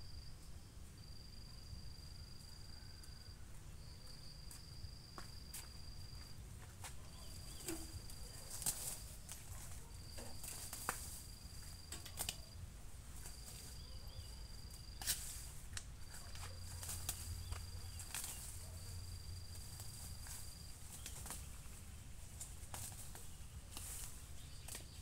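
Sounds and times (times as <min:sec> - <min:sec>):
weeds pulled rustling and snapping: 0:07.2 - 0:25.0.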